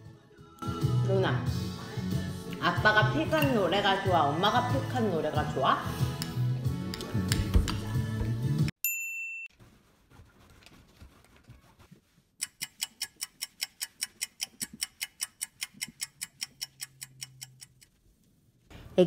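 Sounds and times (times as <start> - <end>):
fast clock ticking: 12.4 - 17.9.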